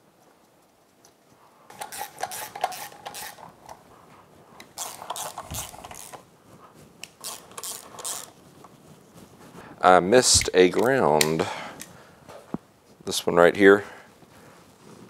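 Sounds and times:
socket ratchet clicking: 0:01.7 - 0:03.5, 0:04.6 - 0:06.2, 0:07.0 - 0:08.4.

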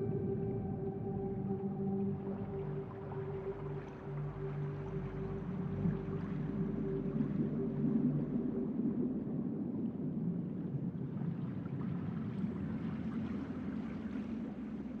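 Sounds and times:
celtic background music: 0:00.0 - 0:09.2.

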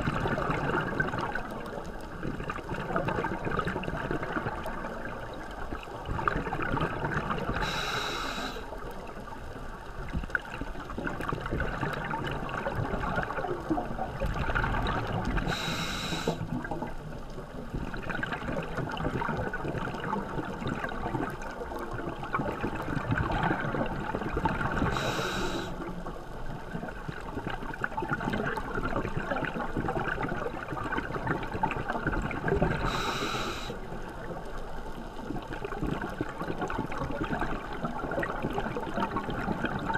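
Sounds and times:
underwater bubbling: 0:00.0 - 0:39.9
scuba regulator breath hissing: 0:07.6 - 0:08.7, 0:15.5 - 0:16.5, 0:24.9 - 0:25.8, 0:32.8 - 0:33.8.

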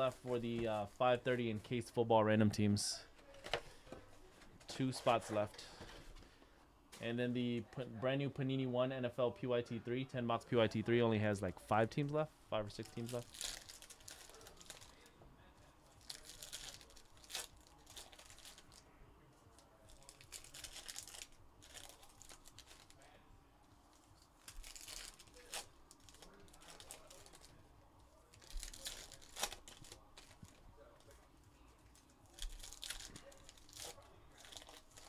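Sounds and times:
wrappers crinkling: 0:12.8 - 0:15.1, 0:15.9 - 0:18.8, 0:19.5 - 0:23.2, 0:23.9 - 0:27.6, 0:28.2 - 0:35.0
foil packs being torn open: 0:24.4 - 0:27.5, 0:28.4 - 0:30.4, 0:32.3 - 0:35.0.

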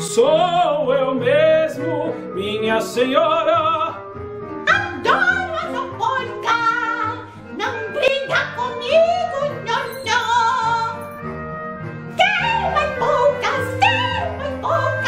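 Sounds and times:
instrumental accompaniment: 0:00.0 - 0:15.0
woman singing opera: 0:04.6 - 0:11.1, 0:12.1 - 0:15.0.

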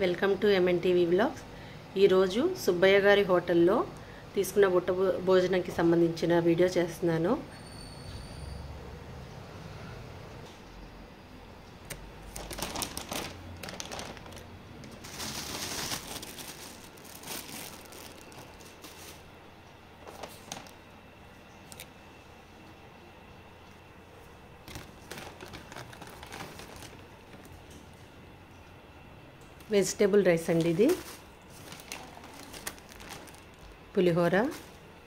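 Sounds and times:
food packets crinkling: 0:12.2 - 0:19.3, 0:20.0 - 0:20.8, 0:24.6 - 0:27.8, 0:30.5 - 0:34.8
plastic bag rustling: 0:12.2 - 0:19.4, 0:20.0 - 0:20.8, 0:24.6 - 0:27.7, 0:30.4 - 0:34.9.

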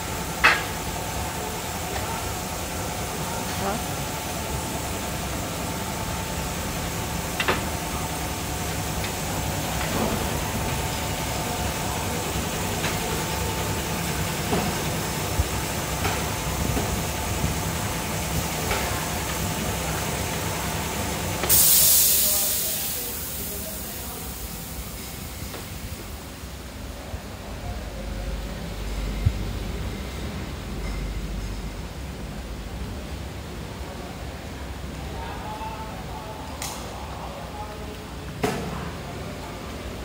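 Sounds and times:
compressed air hiss: 0:21.4 - 0:23.7.

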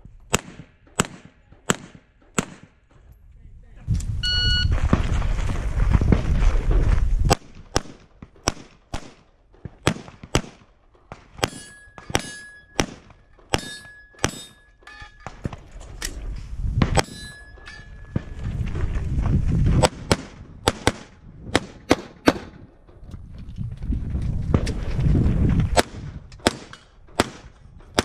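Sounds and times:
handgun firing rapid shots: 0:00.3 - 0:02.8, 0:09.8 - 0:10.7, 0:11.4 - 0:14.6, 0:19.8 - 0:22.6, 0:25.8 - 0:28.0
shot timer beep: 0:04.2 - 0:04.7
steel targets clanging: 0:11.4 - 0:15.5, 0:17.0 - 0:18.2.

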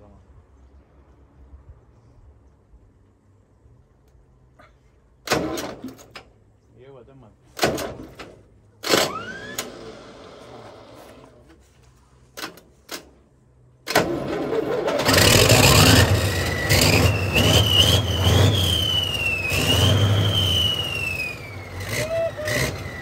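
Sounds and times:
diesel engine starting and running: 0:05.2 - 0:06.4, 0:07.5 - 0:11.7, 0:12.3 - 0:23.0
engine whine climbing in pitch: 0:09.0 - 0:11.5, 0:13.9 - 0:23.0.

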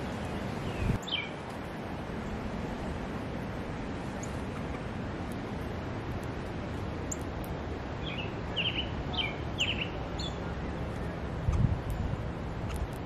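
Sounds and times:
bird chirping: 0:00.0 - 0:01.4, 0:08.0 - 0:12.9.

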